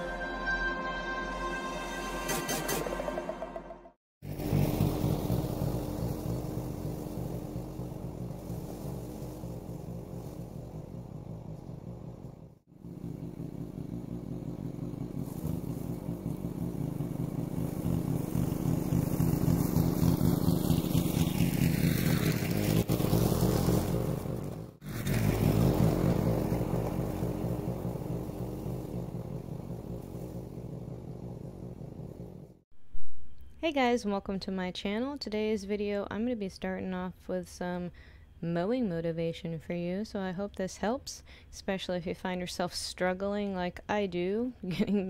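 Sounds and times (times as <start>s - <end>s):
lawn mower engine running: 4.2s - 32.6s.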